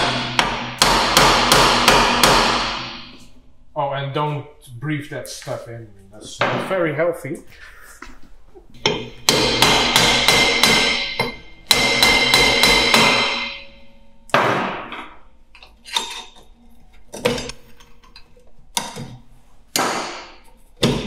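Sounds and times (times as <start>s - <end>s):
metal drum ringing: 0.0s - 3.1s, 9.3s - 14.2s
hammer striking brake drum: 0.0s - 3.2s, 8.8s - 15.2s.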